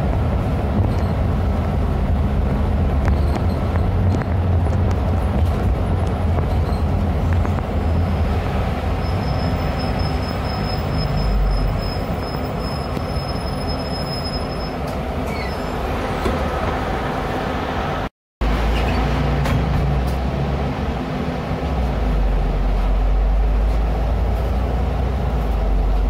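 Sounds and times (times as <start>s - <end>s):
bus engine drone: 0.0s - 26.0s
road noise: 0.0s - 26.0s
high thin squeal: 9.0s - 16.0s.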